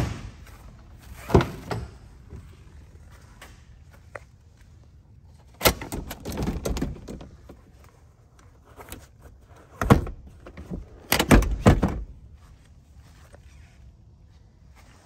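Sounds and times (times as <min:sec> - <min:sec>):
seat mechanism clunking: 0:00.0 - 0:02.4, 0:05.5 - 0:07.8, 0:08.7 - 0:12.2
seat rustling and rattling: 0:00.0 - 0:14.0.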